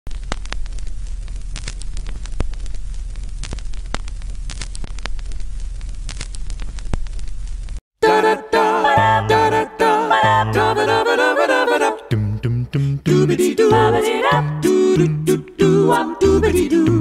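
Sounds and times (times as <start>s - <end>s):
old record surface noise: 0.1s - 7.8s
a cappella group singing: 8.0s - 17.0s.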